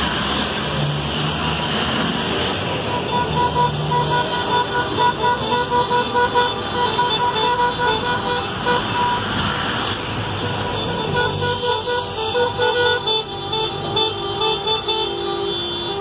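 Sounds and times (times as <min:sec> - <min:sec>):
bus engine passing: 0:00.0 - 0:16.0
street traffic: 0:00.0 - 0:16.0
vehicle horns honking: 0:02.7 - 0:09.7, 0:10.3 - 0:16.0.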